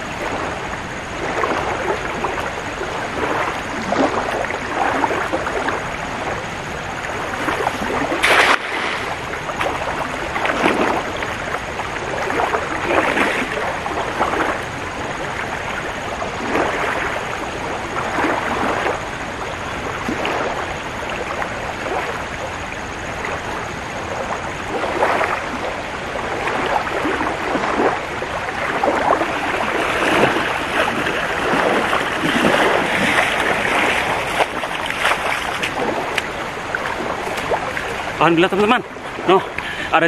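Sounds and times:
river rushing: 0.0 - 40.0
person wading and splashing: 1.2 - 6.3, 7.2 - 14.6, 16.4 - 17.2, 26.3 - 39.9.

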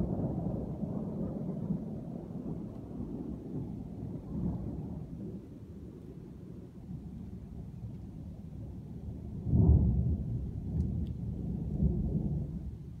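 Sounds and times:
thunder rumbling: 0.0 - 13.0.

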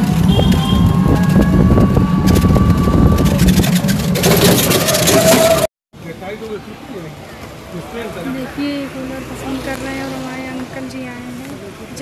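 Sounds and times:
wind on microphone: 0.0 - 4.5
vehicle engine and road noise: 0.0 - 12.0
clatter: 3.1 - 5.7.

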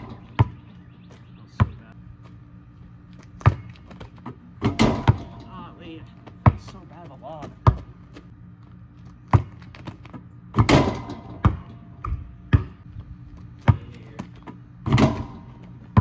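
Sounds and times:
ball clattering on rim and backboard: 0.0 - 0.6, 3.4 - 6.8, 9.3 - 12.8, 13.6 - 16.0
basketball bouncing on hard ground: 0.0 - 16.0.

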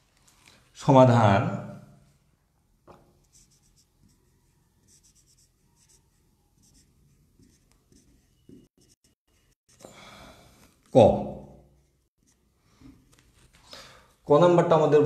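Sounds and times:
pen scratching on paper: 3.2 - 9.8, 11.8 - 13.6.

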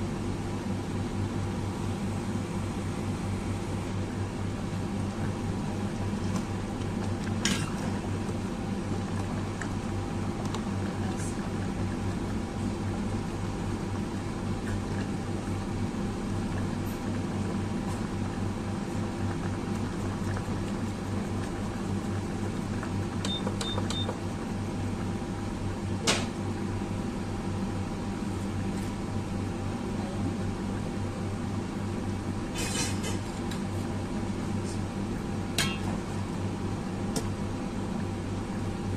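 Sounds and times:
soup boiling in pot: 0.0 - 38.9
metal ladle clinking on pot: 35.6 - 35.9.

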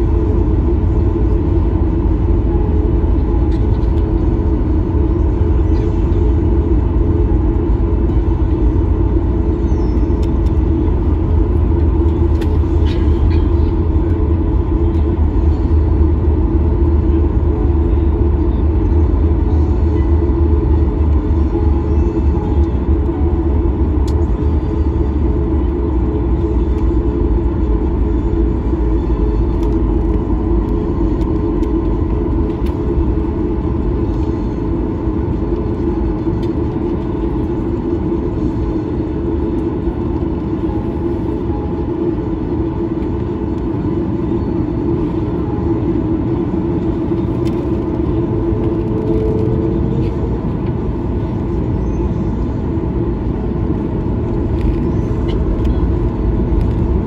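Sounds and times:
aircraft rolling rumble: 0.0 - 57.0
jet engines droning: 0.0 - 57.0.

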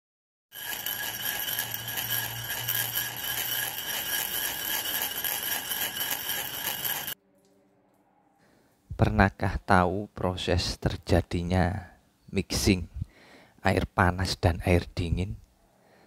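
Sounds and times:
high ringing logo tones: 0.5 - 7.2.

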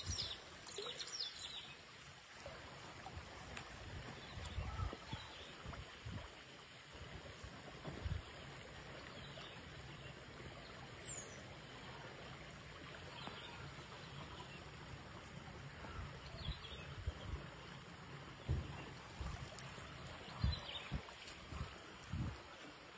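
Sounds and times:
low thumps: 18.4 - 19.4.

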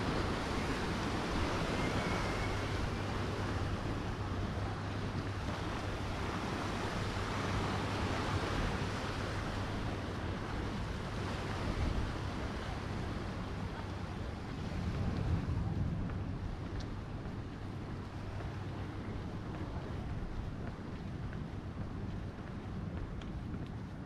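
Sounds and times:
sea surf washing on shore: 0.0 - 24.0
wind buffeting microphone: 0.0 - 24.0.

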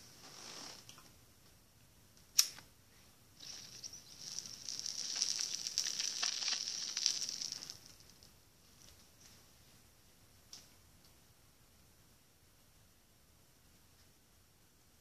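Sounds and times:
crackling hiss of burning smoke: 0.0 - 1.0, 2.2 - 9.8
lighter click: 2.4 - 2.6.

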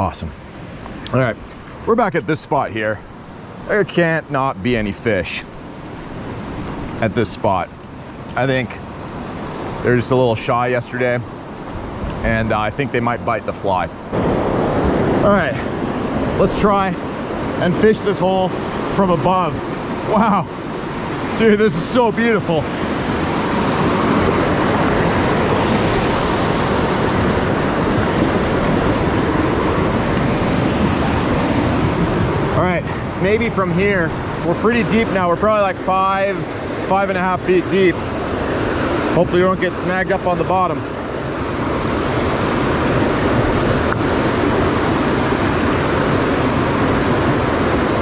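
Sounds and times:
river rapids rushing: 13.9 - 48.0.

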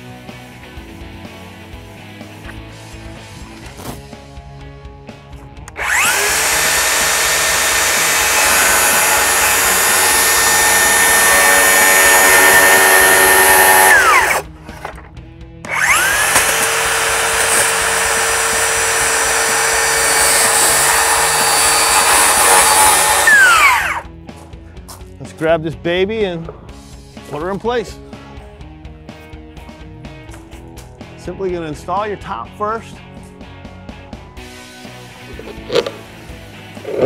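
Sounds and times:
circular saw cutting plastic: 5.8 - 14.5, 15.7 - 24.0.

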